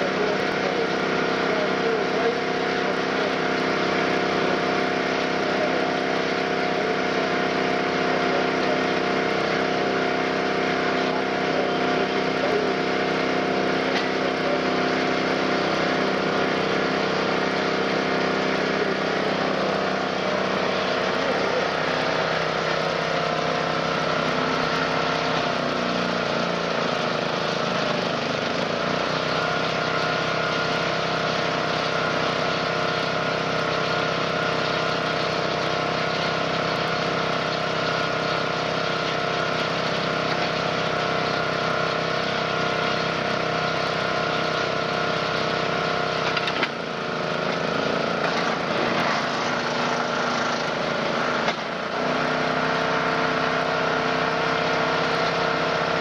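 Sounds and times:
baler engine running: 0.0 - 56.0.

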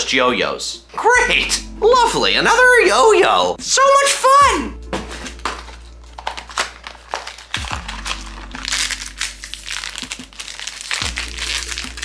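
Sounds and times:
background music: 0.0 - 12.0
plastic packaging crinkling: 5.0 - 12.0.

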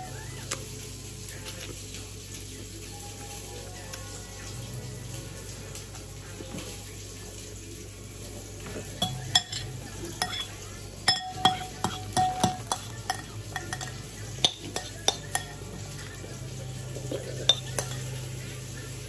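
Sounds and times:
metal spoon clinking on ceramic bowl: 9.0 - 15.6, 17.4 - 18.2.

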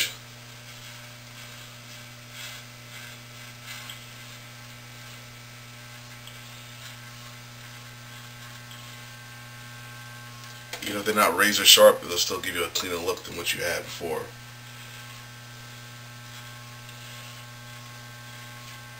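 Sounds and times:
electric hair clippers humming: 0.0 - 18.9
clipper blades rasping: 0.6 - 5.3.

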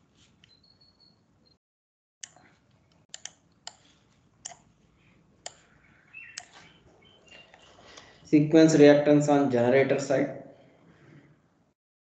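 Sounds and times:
computer clicks: 2.2 - 4.7, 5.4 - 5.7, 6.3 - 6.6.

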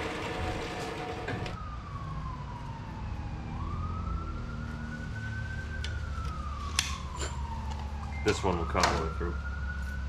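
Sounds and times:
band saw cutting metal: 0.0 - 1.5
siren wailing: 0.4 - 10.0.

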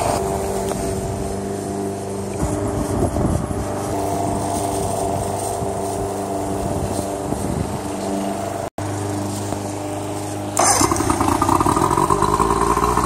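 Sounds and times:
outboard motor idling: 10.6 - 13.0.

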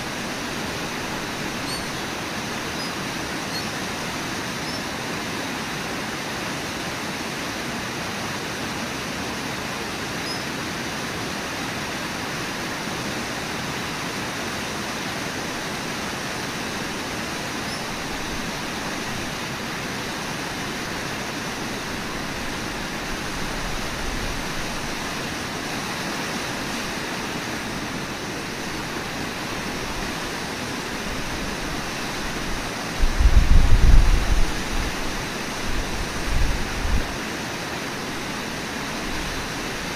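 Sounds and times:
waterfall and rapids rushing: 0.0 - 39.9.

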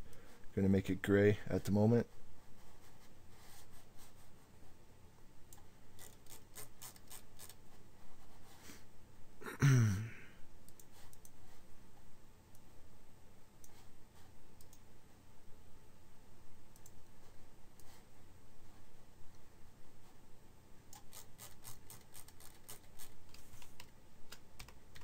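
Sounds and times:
computer mouse clicking: 5.5 - 7.6, 10.7 - 11.4, 14.6 - 14.8, 16.7 - 17.1, 20.9 - 25.0.

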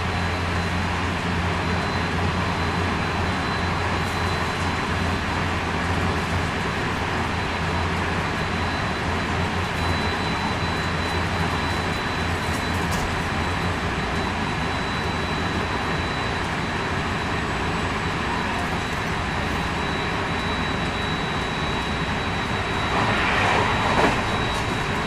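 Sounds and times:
high-pitched whine: 0.0 - 25.0
low hum: 19.2 - 25.0
train wheels rumbling on rail: 22.2 - 25.0.

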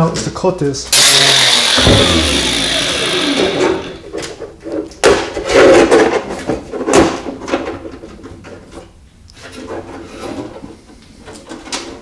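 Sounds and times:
angle grinder spinning down: 1.0 - 4.1.

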